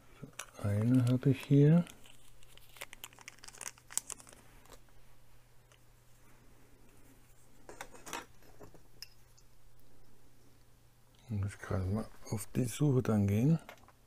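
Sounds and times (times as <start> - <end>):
faint low hum: 0.0 - 14.0
hands rummaging in plastic parts: 0.3 - 4.9.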